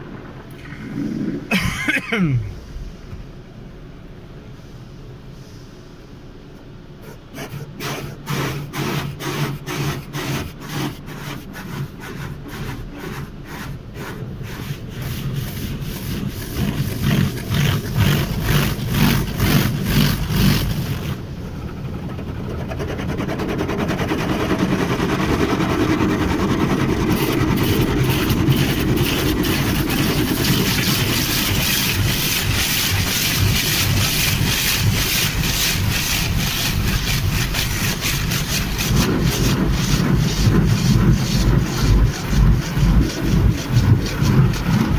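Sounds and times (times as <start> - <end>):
car wash brushes slapping car: 6.6 - 44.9
water jets spraying on car: 7.3 - 21.2, 23.2 - 44.9.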